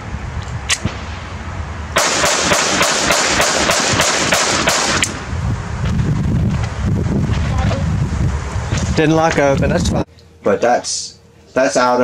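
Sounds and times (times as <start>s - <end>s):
pistol handling clicks: 0.4s - 0.8s
pistol shots: 2.0s - 5.2s.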